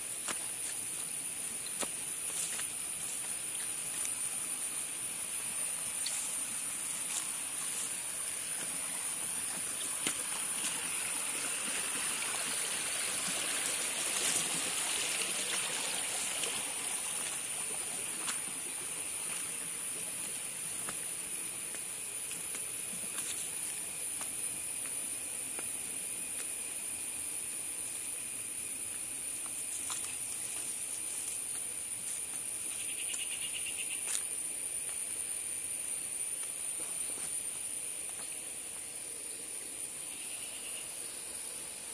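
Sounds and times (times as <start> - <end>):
stream trickling over rocks: 0.0 - 33.2
insects droning: 0.0 - 41.9.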